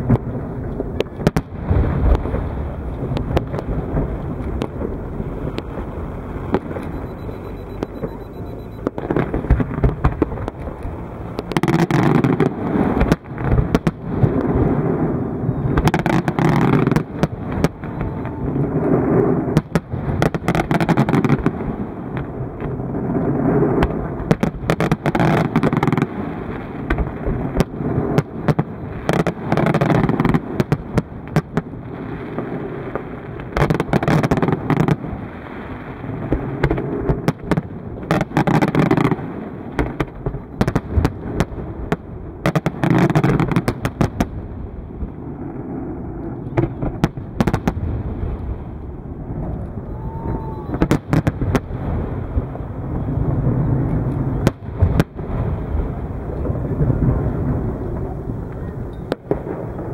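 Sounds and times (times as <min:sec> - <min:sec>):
fireworks bangs and crackles: 0:00.0 - 0:59.9
fireworks rumbling din: 0:00.0 - 0:59.9.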